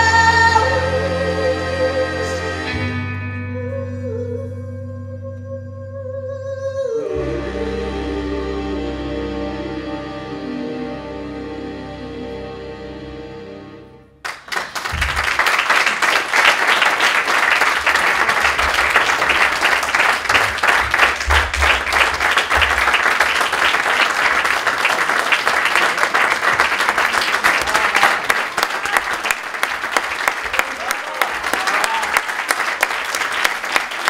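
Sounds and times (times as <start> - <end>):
sustained music: 0.0 - 6.2, 6.8 - 14.2
audience applauding: 14.2 - 34.0.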